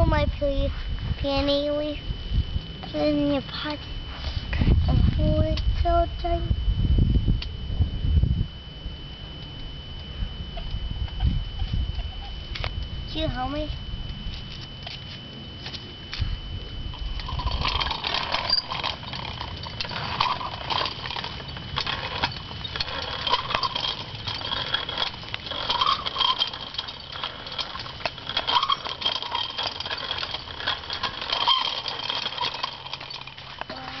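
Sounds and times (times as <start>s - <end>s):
footsteps walking: 14.2s - 16.4s
bike wheels rattling on concrete: 16.9s - 34.0s.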